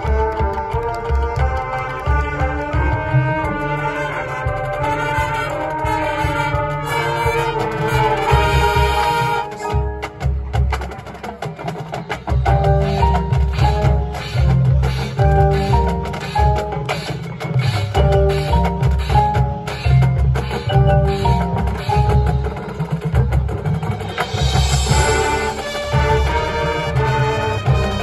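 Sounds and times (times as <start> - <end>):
brass chords: 0.0 - 9.8, 24.2 - 28.0
marching drums: 0.0 - 28.0
short brass notes: 0.8 - 9.8, 24.8 - 28.0.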